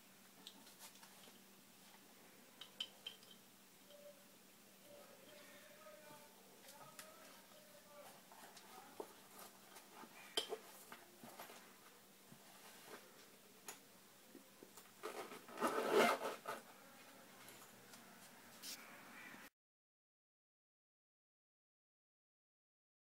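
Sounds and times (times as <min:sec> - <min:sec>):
cloth pouches rustling: 0:15.0 - 0:16.6
zipper being pulled shut: 0:15.0 - 0:16.6.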